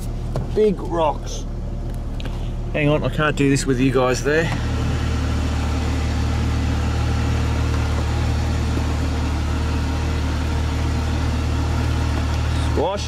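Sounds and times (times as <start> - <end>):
car engine running at low revs: 0.0 - 13.0.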